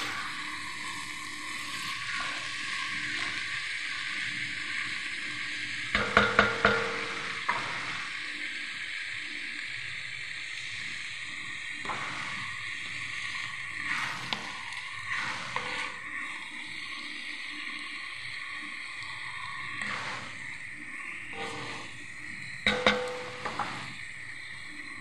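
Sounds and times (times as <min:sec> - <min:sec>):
vegetables sizzling in a pot: 0:00.0 - 0:25.0
sharp ringing knocks: 0:22.7 - 0:23.6.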